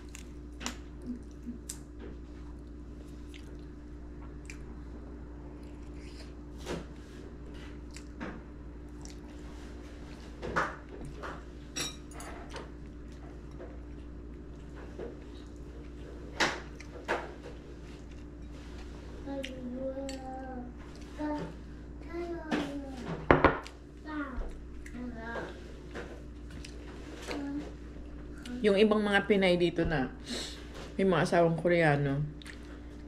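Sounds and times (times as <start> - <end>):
person chewing: 0.0 - 3.8, 4.4 - 4.7, 7.7 - 8.2, 8.9 - 9.4
steady low hum: 0.0 - 33.0.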